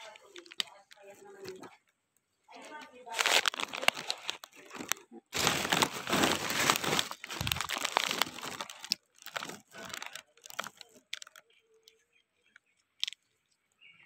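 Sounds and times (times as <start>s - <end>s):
leaves rustling and crinkling: 2.6s - 11.4s.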